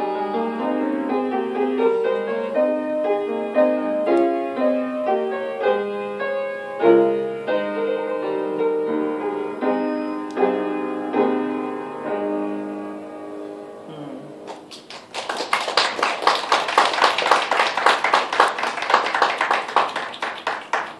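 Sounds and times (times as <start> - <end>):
piano chords: 0.0 - 14.5
audience clapping: 14.5 - 20.9.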